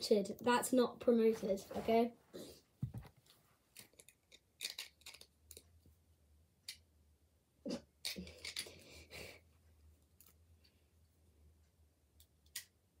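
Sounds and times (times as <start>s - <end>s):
plastic bricks clicking together: 3.8s - 5.7s, 8.0s - 8.8s.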